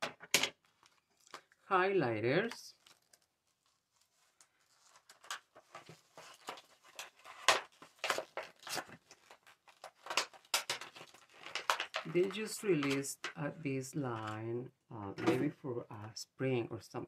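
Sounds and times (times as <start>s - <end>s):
packaging crinkling: 0.6s - 1.6s, 2.4s - 13.5s
sharp packaging clicks: 4.8s - 13.4s.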